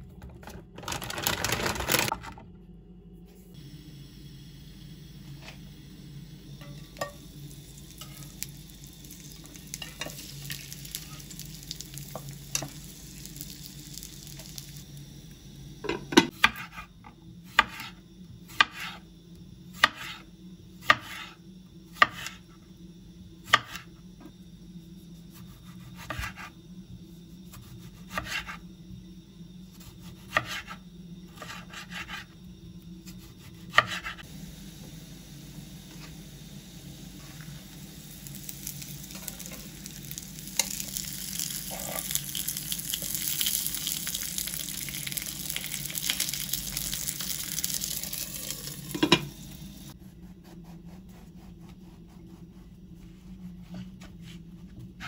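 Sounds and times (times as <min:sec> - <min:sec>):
steady low hum: 0:00.0 - 0:55.0
food sizzling in a pan: 0:03.6 - 0:19.1, 0:33.2 - 0:50.0.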